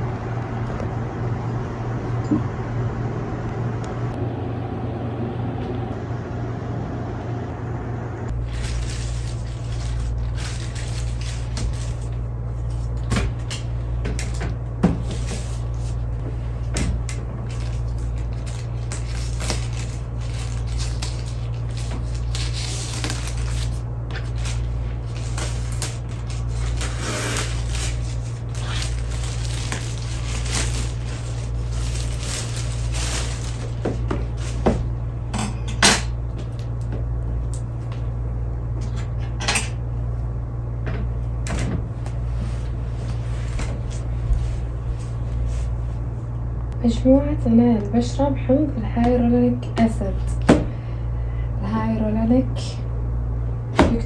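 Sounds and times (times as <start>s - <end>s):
steady low hum: 0.0s - 54.0s
plastic bag rustling and crinkling: 8.4s - 13.0s, 17.4s - 34.8s.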